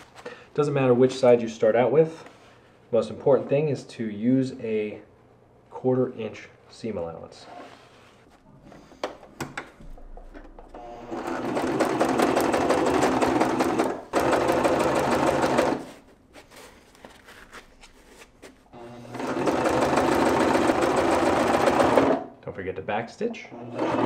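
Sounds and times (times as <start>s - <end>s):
sewing machine stitching: 10.8s - 15.9s, 18.8s - 22.3s, 23.6s - 24.0s.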